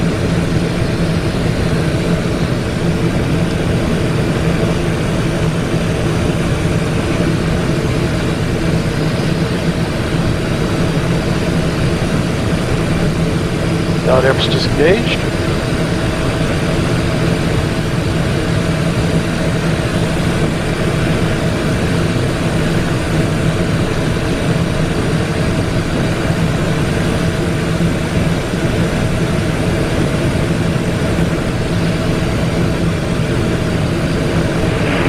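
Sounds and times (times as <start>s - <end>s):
jet cockpit airflow and engine drone: 0.0s - 35.0s
low hum: 33.3s - 35.0s.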